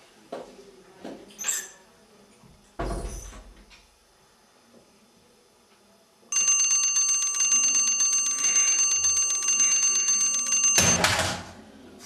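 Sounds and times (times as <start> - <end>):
bell alarm clock ringing: 6.3 - 11.0.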